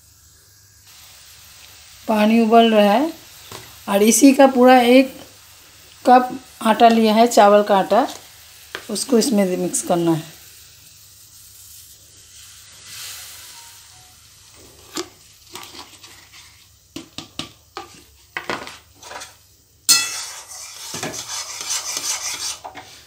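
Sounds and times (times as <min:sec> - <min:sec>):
flour poured into water hissing: 0:00.0 - 0:16.9
spoon scraping dough in pan: 0:14.8 - 0:23.0
metal spoon knocking on pan: 0:19.9 - 0:20.2.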